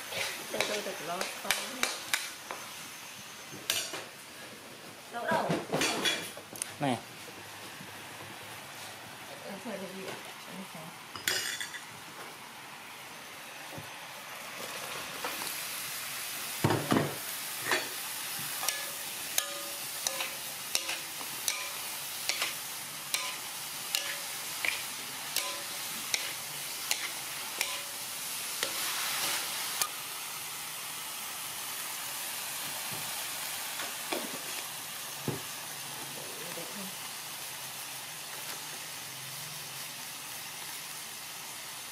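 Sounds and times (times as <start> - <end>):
food sizzling in a wok: 0.0 - 41.9
spatula clanking against wok: 0.6 - 2.3, 18.5 - 28.0.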